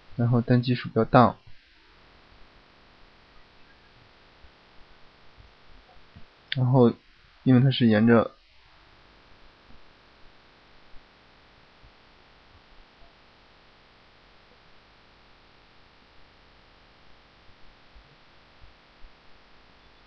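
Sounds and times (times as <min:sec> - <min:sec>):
low mains hum: 0:00.0 - 0:20.0
microphone hiss: 0:00.0 - 0:20.0.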